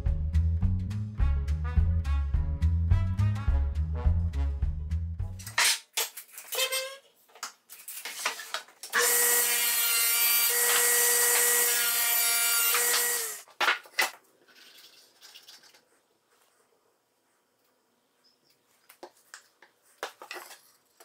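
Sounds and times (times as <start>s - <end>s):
table saw cutting plywood: 9.0s - 13.4s.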